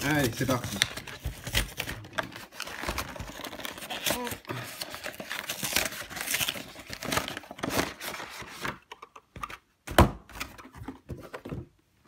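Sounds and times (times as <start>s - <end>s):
plastic wrapping crinkling and tearing: 0.0s - 8.5s.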